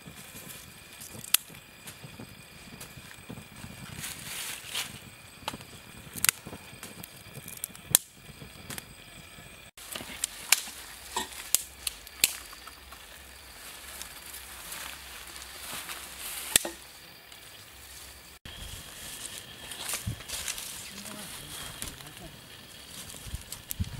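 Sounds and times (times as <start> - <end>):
small fire crackling: 0.0 - 23.9
knife and dry sticks clicking: 1.0 - 1.6, 5.5 - 8.8, 9.9 - 12.8, 16.5 - 16.8.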